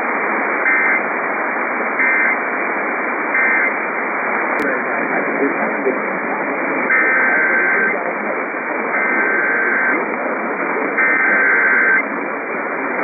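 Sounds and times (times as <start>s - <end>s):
am radio static: 0.0s - 13.0s
alert data tone bursts: 0.6s - 1.0s, 2.0s - 2.4s, 3.3s - 3.8s, 6.9s - 8.0s, 8.9s - 10.0s, 11.0s - 12.0s.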